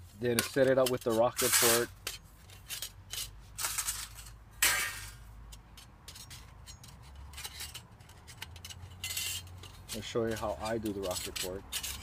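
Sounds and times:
metal panels clinking: 0.2s - 12.0s.

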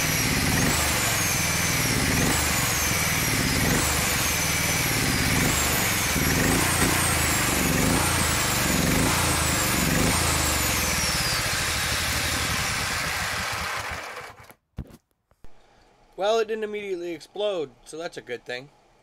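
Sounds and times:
engine running rough and surging: 0.0s - 14.4s
supercharger blower whine: 0.0s - 14.5s.

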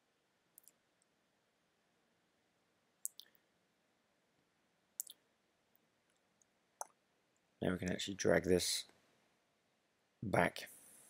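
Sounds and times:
computer mouse clicking: 0.6s - 0.8s.

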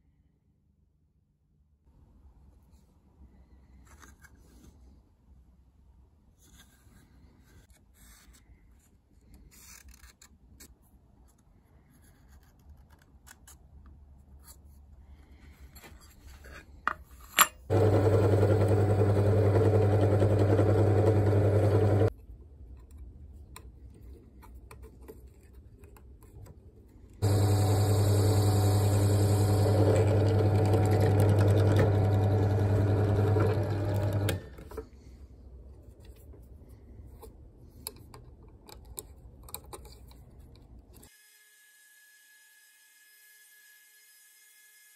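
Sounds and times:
faint handling sounds: 2.4s - 17.7s, 22.1s - 27.2s, 34.5s - 41.1s
drill press motor running: 17.7s - 22.1s, 27.2s - 34.7s.

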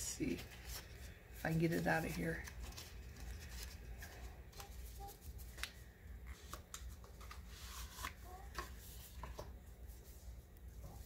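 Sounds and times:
packaging rustling: 0.4s - 5.8s.

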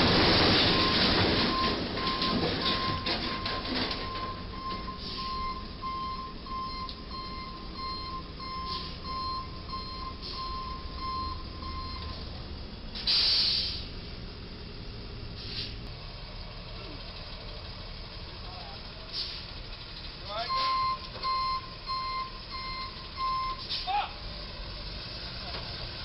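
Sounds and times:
truck reversing alarm beeping: 0.1s - 13.9s, 17.5s - 24.6s
short loud hiss: 13.0s - 13.9s, 15.4s - 15.8s.

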